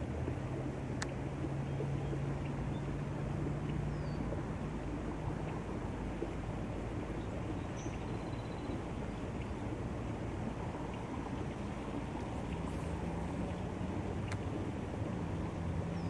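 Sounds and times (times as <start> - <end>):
wind rumble on microphone: 0.0 - 16.0
faint bird chirps: 7.2 - 8.9.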